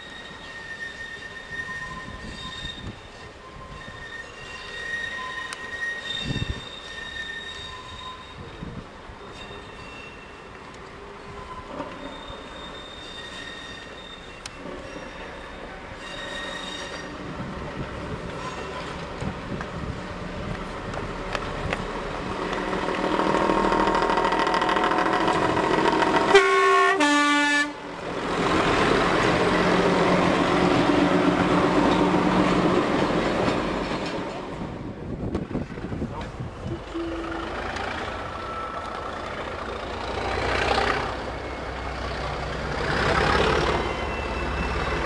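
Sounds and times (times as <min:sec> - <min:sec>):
diesel train passing: 0:00.0 - 0:45.0
two-tone train horn: 0:26.1 - 0:27.9, 0:36.7 - 0:37.8.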